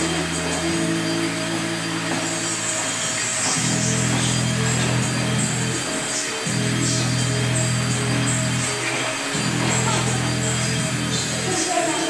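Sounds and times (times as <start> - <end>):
music of sustained chords: 0.0 - 12.0.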